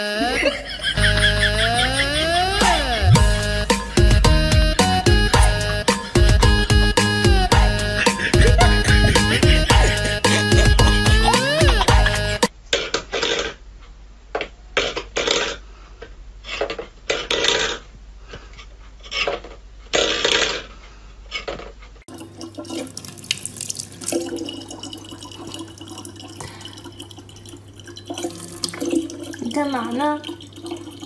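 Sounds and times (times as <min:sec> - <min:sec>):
faucet running into plastic bottle: 0:22.1 - 0:31.0.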